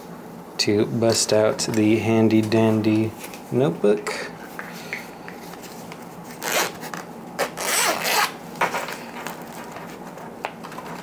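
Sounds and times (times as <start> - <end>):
zipper being unzipped: 6.4 - 6.8, 7.4 - 8.3.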